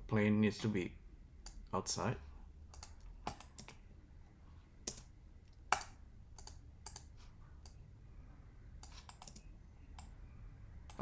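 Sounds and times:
faint low hum: 0.0s - 11.0s
keyboard and mouse clicks: 2.7s - 3.8s, 4.8s - 7.8s, 8.8s - 10.2s.

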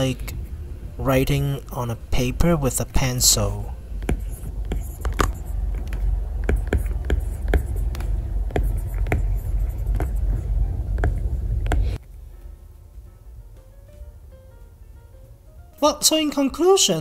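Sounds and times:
stylus scratching on screen: 4.0s - 12.0s.

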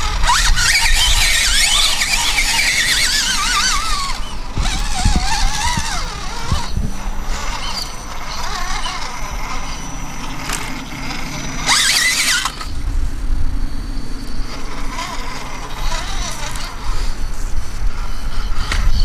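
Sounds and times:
electric motor and gears whining: 0.0s - 19.0s.

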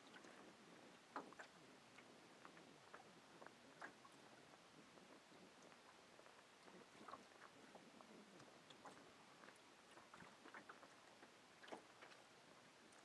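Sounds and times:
faint small clicks and crackles: 0.0s - 13.0s.

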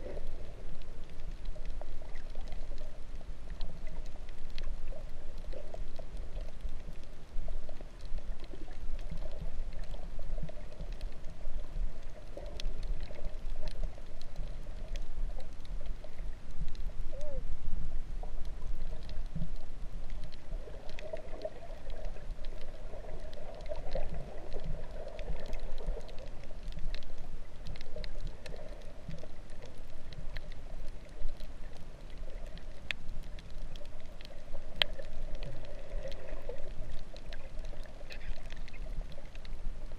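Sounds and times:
faint clicks: 0.0s - 39.9s
underwater sloshing rumble: 0.0s - 39.9s.

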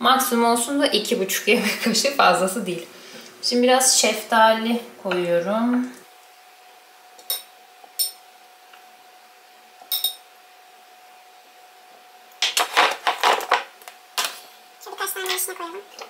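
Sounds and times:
faint steady hum: 0.0s - 16.0s
metal spoon clinking on glass: 7.2s - 8.2s, 9.9s - 10.2s.

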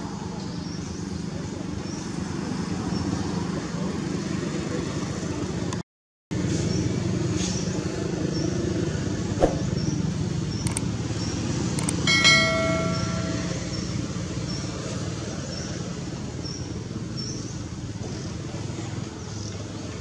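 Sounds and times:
road traffic rumble: 0.0s - 20.0s
sharp click: 10.6s - 10.9s, 11.8s - 12.0s
bright chime sound effect: 12.1s - 14.0s.

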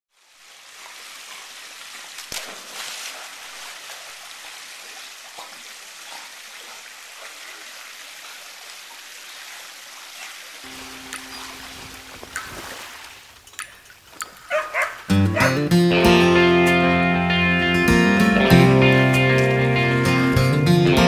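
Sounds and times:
water splashing into pool: 0.1s - 15.6s.

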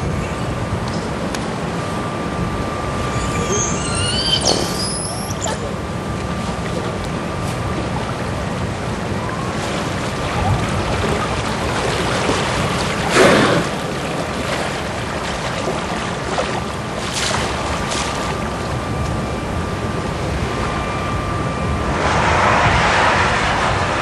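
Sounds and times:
wind: 0.0s - 24.0s
rippling water: 2.9s - 20.4s
killer whale blowhole exhalation: 13.0s - 14.0s.

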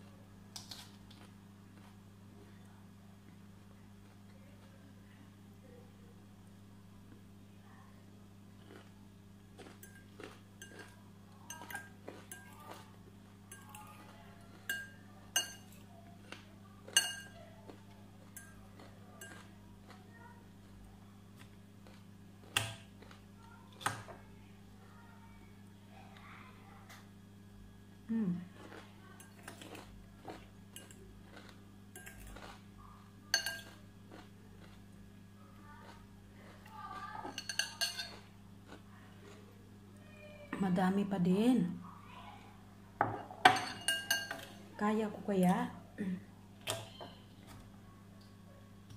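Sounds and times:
steady low hum: 0.0s - 48.9s
fork clinking against glass bowl: 11.5s - 12.7s, 13.5s - 13.9s, 14.5s - 15.8s, 16.9s - 17.4s, 18.2s - 19.5s, 33.3s - 33.8s, 37.3s - 38.3s, 43.4s - 44.5s
fork clinking on glass bowl: 16.9s - 17.3s, 33.3s - 33.8s, 37.3s - 38.2s, 43.1s - 44.5s.

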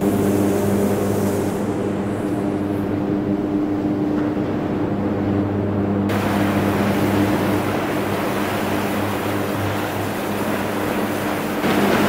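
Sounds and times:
electrical hum: 0.0s - 12.0s
crackling roar of electric arcs: 6.0s - 12.0s.

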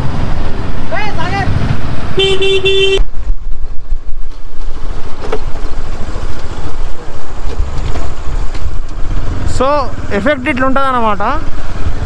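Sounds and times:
motorcycle engine running: 0.0s - 12.0s
wind buffeting microphone: 3.0s - 10.2s.

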